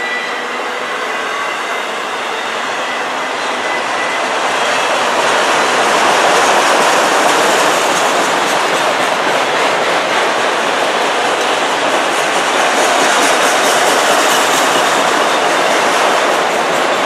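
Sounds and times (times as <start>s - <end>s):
faint high wheel squeal: 0.0s - 4.8s
steel wheels rushing on rail: 0.0s - 17.0s.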